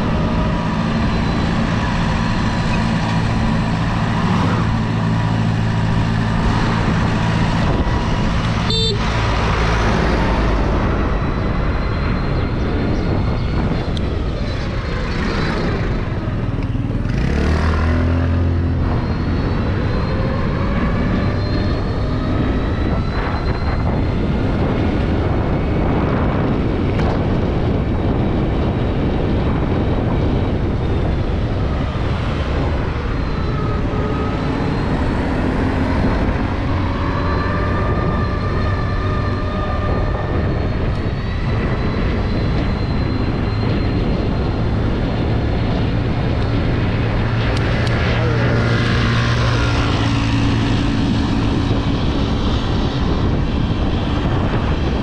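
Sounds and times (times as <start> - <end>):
wind and road noise: 0.0 - 55.0.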